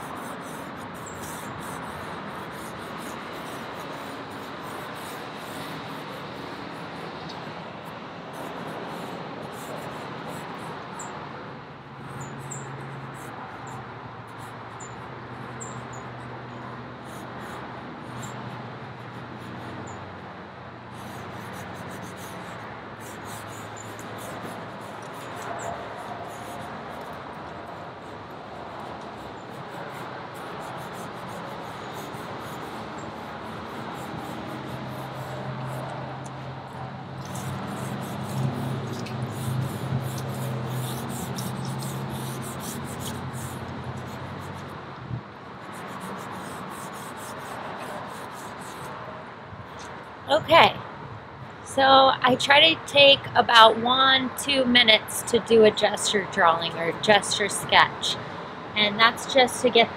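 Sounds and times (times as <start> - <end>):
light scratchy ticks: 37.2 - 45.1.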